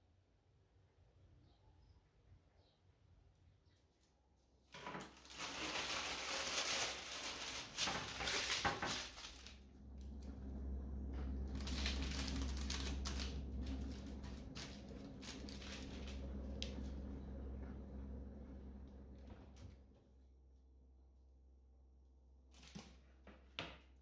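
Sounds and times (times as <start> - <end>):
steady low hum: 0.7 - 24.0
objects clattering and rustling: 4.8 - 18.3.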